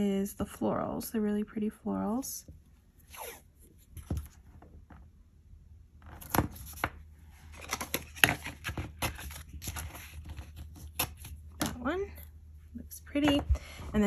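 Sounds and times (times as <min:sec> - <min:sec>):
paper rustling: 0:06.2 - 0:11.5.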